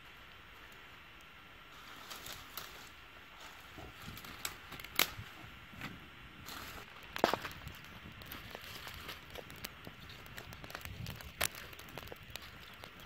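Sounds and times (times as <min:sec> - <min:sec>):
twigs and grass crackling in fire: 0:00.0 - 0:13.0.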